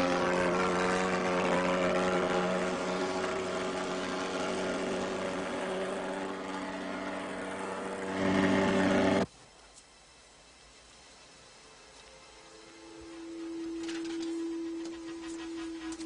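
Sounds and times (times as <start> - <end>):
fogging machine engine drone: 0.0 - 9.3, 10.1 - 16.0.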